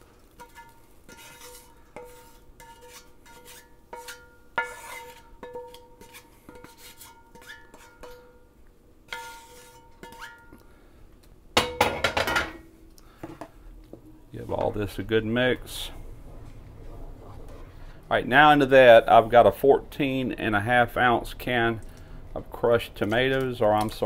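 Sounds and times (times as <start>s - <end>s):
wooden spatula scraping skillet: 0.0s - 8.3s, 9.1s - 10.6s
metal cookware knocks: 11.6s - 12.7s.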